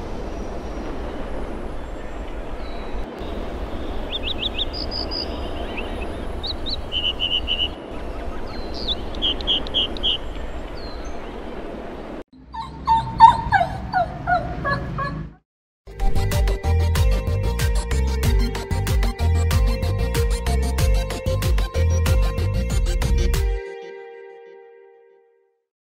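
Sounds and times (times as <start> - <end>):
outdoor background hiss and rumble: 0.0 - 15.0
bird chirps: 2.6 - 11.4, 12.4 - 15.3
dog whimpering and yipping: 12.5 - 15.2.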